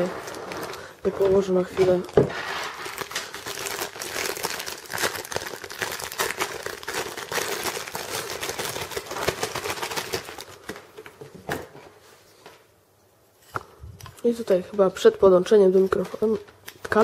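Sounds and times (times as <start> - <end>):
plastic bag crinkling: 0.0 - 11.1.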